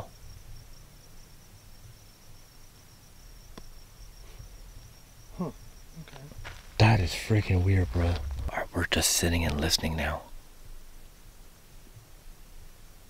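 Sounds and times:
crickets chirping: 0.0 - 13.0
faint low rumble: 4.0 - 10.4.

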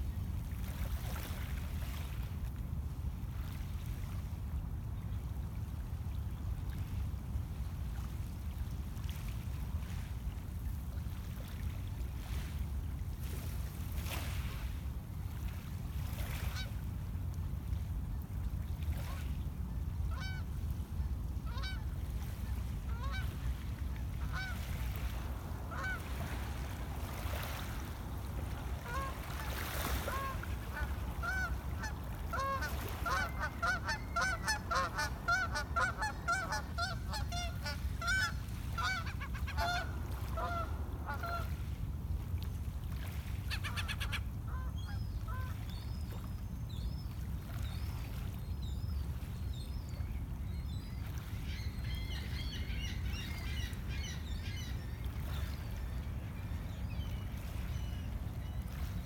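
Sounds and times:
geese honking: 25.7 - 26.4, 28.7 - 41.4.

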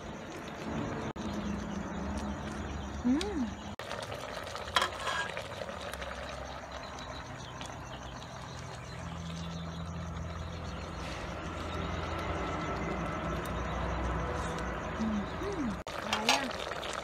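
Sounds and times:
low engine hum: 6.4 - 15.9.

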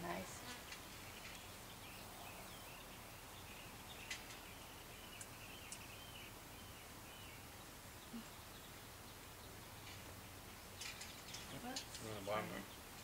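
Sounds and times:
bird chirping and twittering: 0.8 - 13.0
light sharp clicks: 5.2 - 5.9.

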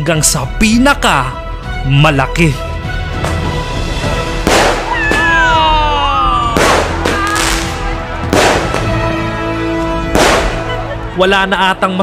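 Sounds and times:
firework shells bursting: 6.5 - 9.0.

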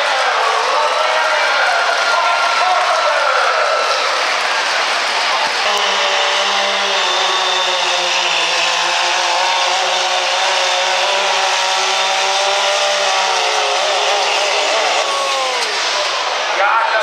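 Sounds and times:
diesel engine revving high: 3.8 - 16.6.

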